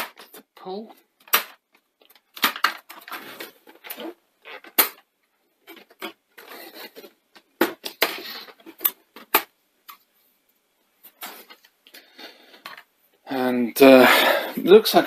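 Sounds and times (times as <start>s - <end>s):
plastic scraping and rubbing: 1.2s - 10.1s.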